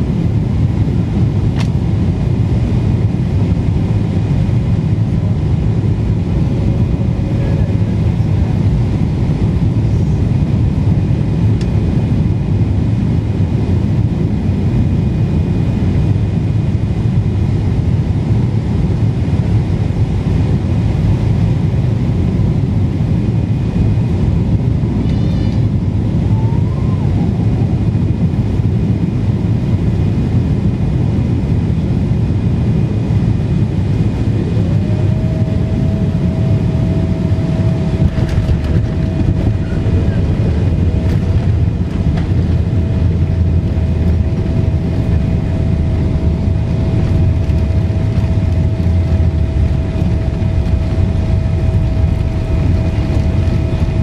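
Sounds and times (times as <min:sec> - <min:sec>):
jet engines rumbling: 0:00.0 - 0:54.0
airflow: 0:32.7 - 0:54.0
steady tone: 0:34.3 - 0:54.0.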